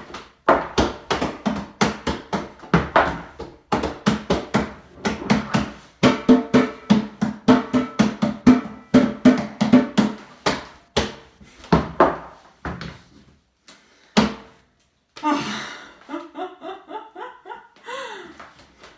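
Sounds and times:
hands drumming on a sink: 1.0 - 11.1
woman laughing: 15.2 - 18.4.

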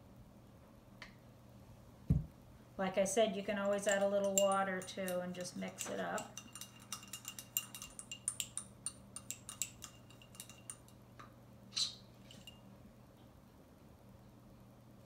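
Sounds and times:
eyedropper clinking against glass jar: 3.5 - 11.0.

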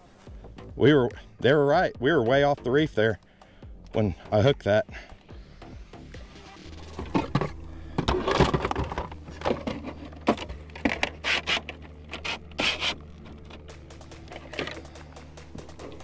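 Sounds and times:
steady low hum: 4.9 - 16.0
gear knocking and scraping on kayak: 6.8 - 16.0.

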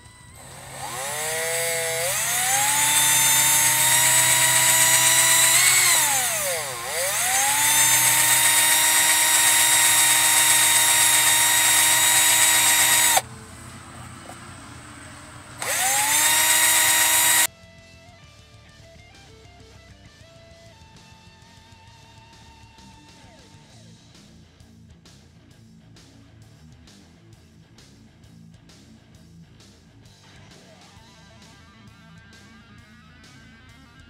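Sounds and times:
cordless drill whining: 0.0 - 17.5.

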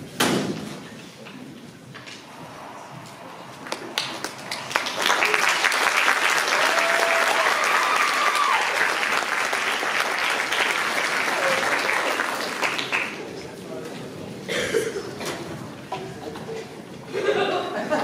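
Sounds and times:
audience applauding: 2.3 - 13.5.

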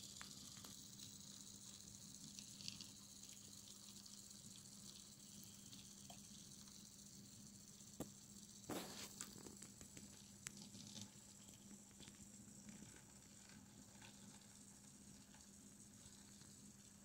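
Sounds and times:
hiss: 8.7 - 9.6.

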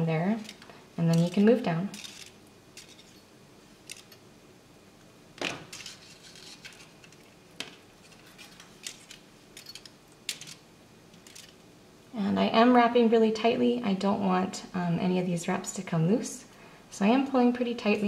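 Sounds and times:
wire ticking and scraping: 0.3 - 4.2, 5.6 - 11.6.

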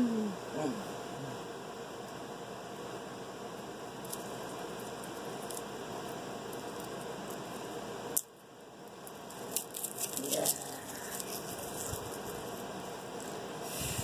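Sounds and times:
background hiss: 0.0 - 14.0
garlic skins rustling: 9.4 - 12.7.

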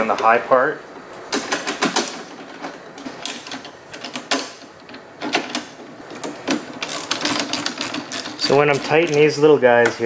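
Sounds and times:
screws rattling against metal: 5.2 - 9.5.

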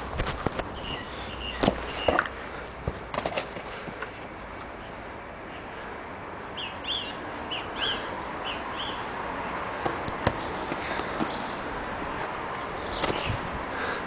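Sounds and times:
small bird chirping: 0.7 - 2.2, 6.6 - 9.1.

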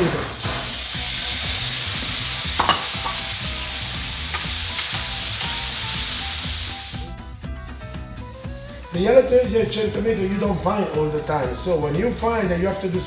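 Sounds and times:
tomatoes sizzling in oil: 0.0 - 7.3.

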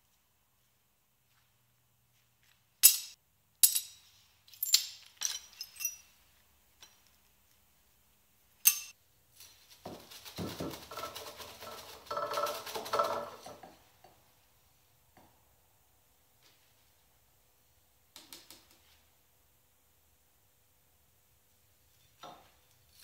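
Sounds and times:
broken glass clinking: 2.8 - 6.2, 8.6 - 9.0.

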